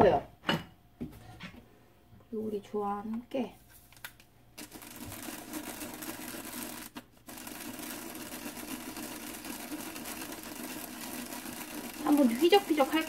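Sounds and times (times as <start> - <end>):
seeds rattling in shaker bottle: 4.6 - 13.0.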